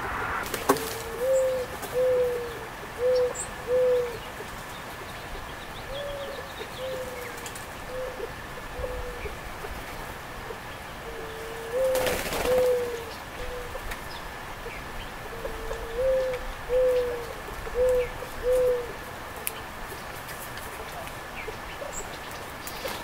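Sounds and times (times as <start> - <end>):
brief rush of noise: 0.0 - 1.7
dove cooing: 0.1 - 4.3, 5.9 - 9.4, 10.5 - 13.8, 15.2 - 19.0.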